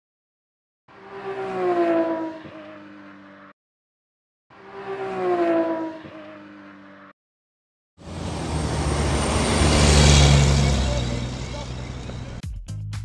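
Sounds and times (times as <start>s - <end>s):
racing car passing by: 0.9s - 3.5s, 4.5s - 7.1s, 8.0s - 12.4s.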